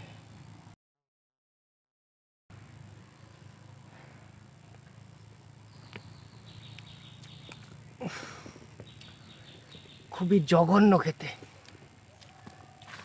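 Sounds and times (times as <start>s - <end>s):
steady low hum: 0.0s - 0.8s, 2.5s - 13.0s
high bird chirps: 5.6s - 7.7s, 8.8s - 10.3s.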